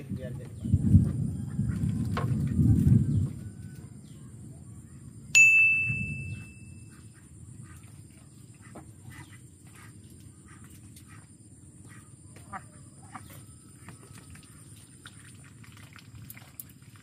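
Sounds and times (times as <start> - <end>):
fishing rod bell ringing: 5.4 - 6.9.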